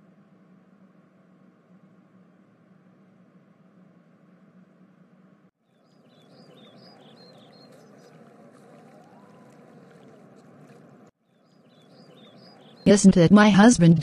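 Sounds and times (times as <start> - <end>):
small birds chirping: 5.6 - 13.3.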